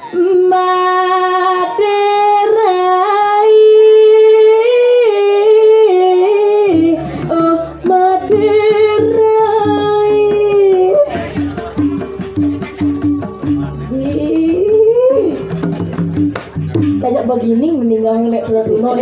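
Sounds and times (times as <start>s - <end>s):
gamelan ensemble: 6.8s - 17.7s.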